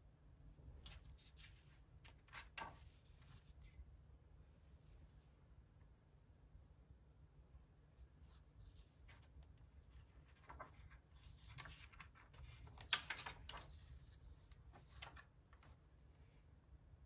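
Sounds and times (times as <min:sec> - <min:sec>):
book pages rustling: 0:00.8 - 0:03.8, 0:08.3 - 0:15.8.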